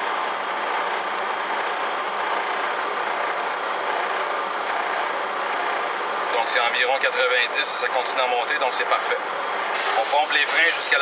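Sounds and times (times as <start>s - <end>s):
diesel engine idling: 0.0s - 11.0s
air compressor running: 9.7s - 11.0s.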